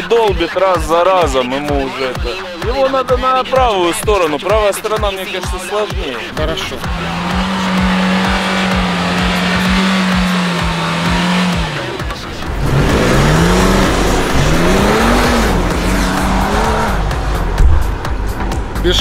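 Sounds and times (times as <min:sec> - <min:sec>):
car engine accelerating through gears: 0:06.5 - 0:18.8.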